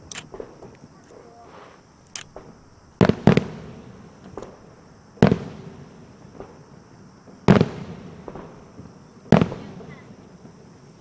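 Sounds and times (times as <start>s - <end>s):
faint firework pops: 2.2s - 4.6s, 6.3s - 6.6s, 7.3s - 10.6s
firework shells booming: 2.2s - 10.6s.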